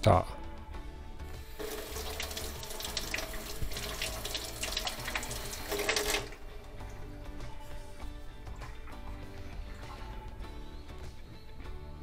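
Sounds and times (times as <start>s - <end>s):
faucet water running into sink: 1.5s - 7.4s.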